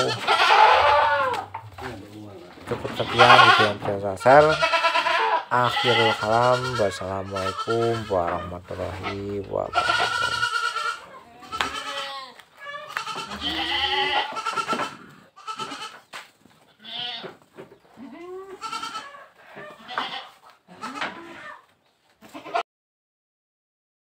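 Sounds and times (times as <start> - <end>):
goats bleating: 0.0 - 16.0, 16.7 - 17.4, 18.0 - 22.6.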